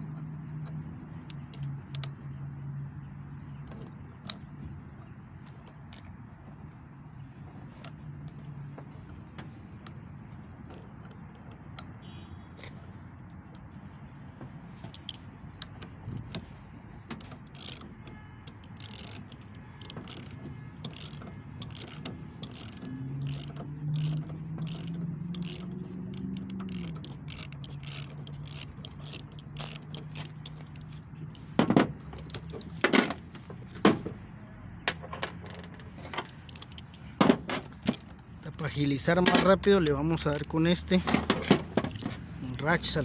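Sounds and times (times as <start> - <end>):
ratchet wrench clicking: 0.0 - 2.3, 14.8 - 33.2, 36.2 - 43.0.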